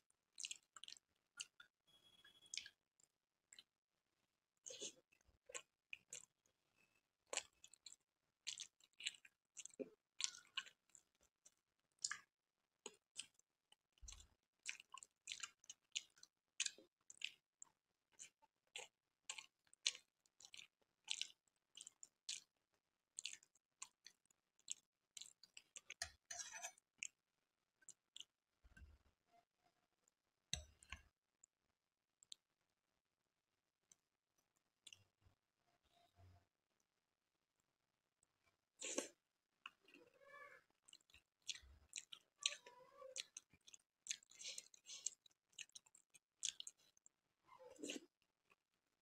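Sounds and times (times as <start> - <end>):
wet chewing clicks and smacks: 0.3 - 3.7, 4.6 - 6.5, 7.2 - 27.2, 27.8 - 28.3, 32.2 - 32.4, 40.8 - 47.1.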